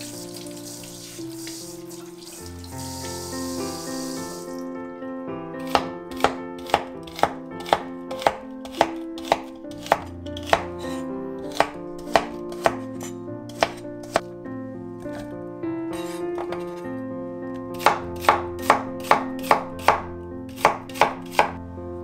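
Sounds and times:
knife slicing celery on wooden board: 5.7 - 14.3, 17.8 - 21.6.

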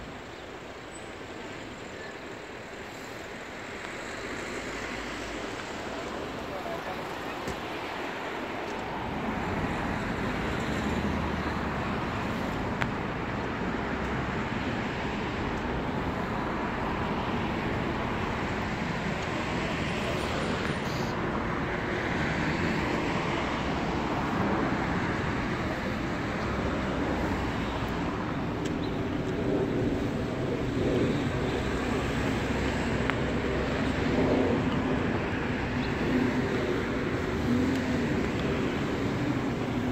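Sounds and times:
hum of road traffic: 0.0 - 39.9.

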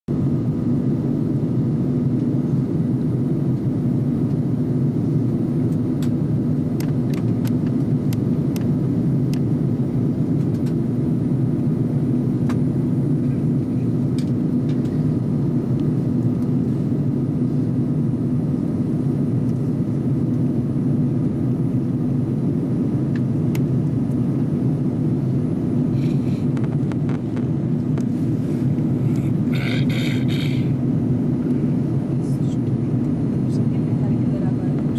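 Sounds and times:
airliner cabin roar: 0.1 - 34.9
low even hum: 0.1 - 34.9.

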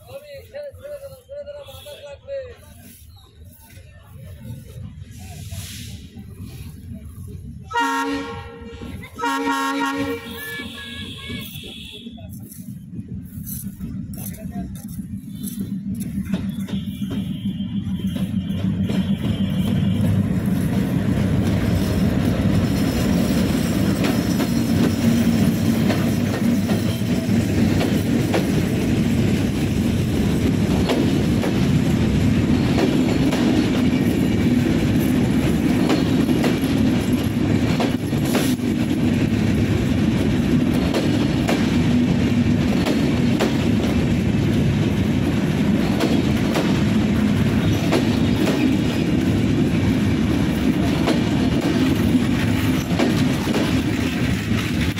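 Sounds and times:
train passing: 0.0 - 54.9
wheels clattering over rail joints: 18.0 - 54.9.

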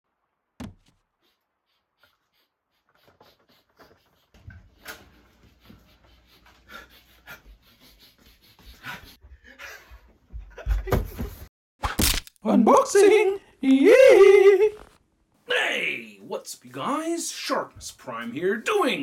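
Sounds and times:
scuffs and knocks: 0.6 - 1.0
man breathing heavily: 1.2 - 9.6.

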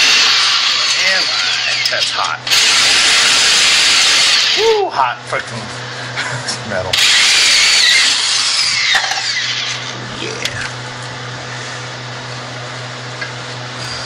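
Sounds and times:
power cutter cutting metal: 0.0 - 4.6, 6.9 - 10.6.

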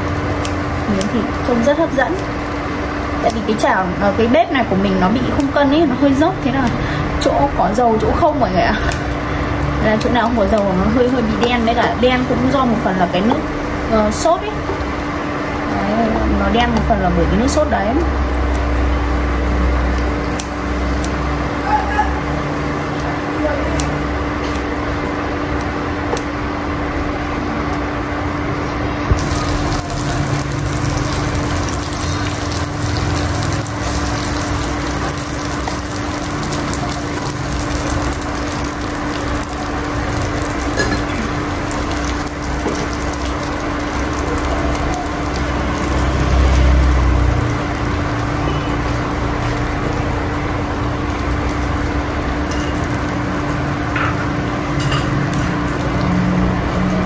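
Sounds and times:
food sizzling in frying pan: 0.0 - 6.7, 7.9 - 16.3, 16.9 - 21.6, 27.8 - 57.0.

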